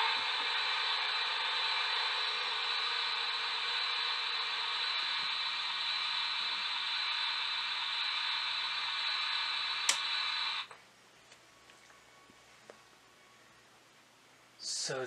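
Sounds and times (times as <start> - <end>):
model steam locomotive hiss: 0.0 - 10.7
sharp click: 9.8 - 10.1.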